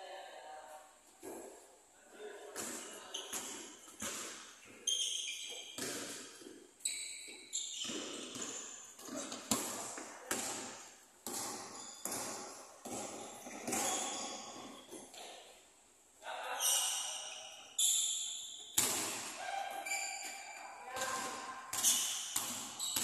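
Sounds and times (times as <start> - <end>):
sneaker squeaks: 2.5 - 10.7, 11.3 - 15.6, 16.6 - 23.0
basketball bouncing: 2.6 - 4.8, 5.5 - 6.5, 7.8 - 15.2, 20.9 - 23.0.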